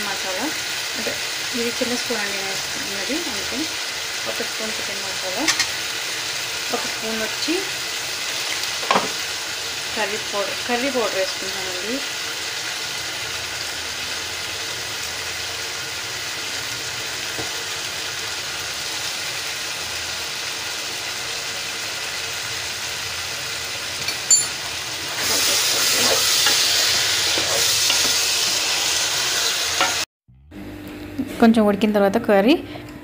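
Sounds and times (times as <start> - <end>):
curry sizzling in pot: 0.0 - 30.1
sharp clink: 24.1 - 24.6.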